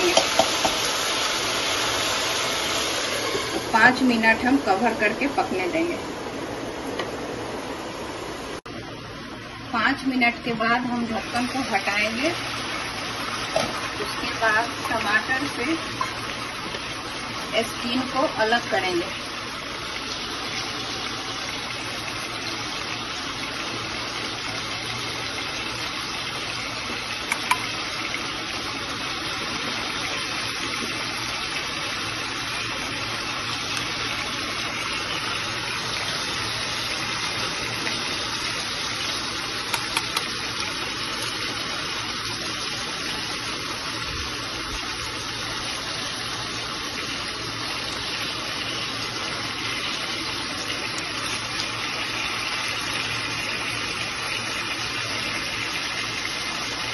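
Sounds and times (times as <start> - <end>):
pot simmering with steady hiss: 0.0 - 56.9.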